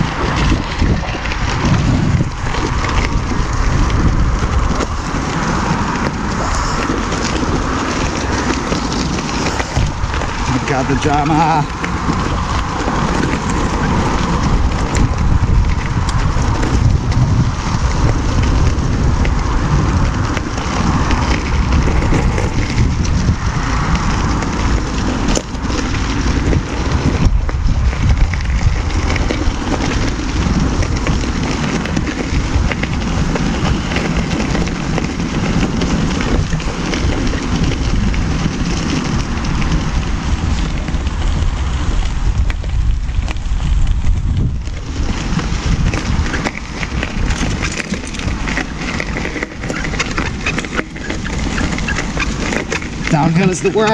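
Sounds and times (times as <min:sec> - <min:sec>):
tyre crunching over gravel: 0:00.0 - 0:53.9
wind on microphone: 0:00.0 - 0:53.9.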